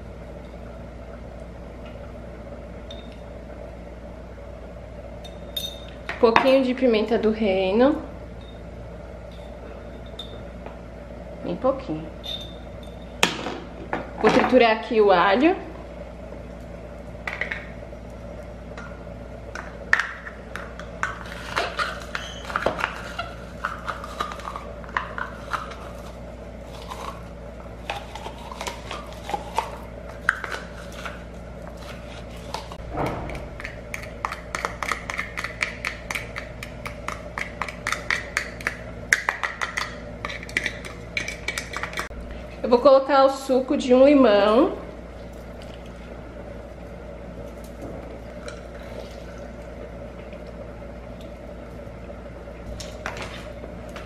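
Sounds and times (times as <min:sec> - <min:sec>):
low hum: 0:23.5 - 0:54.0.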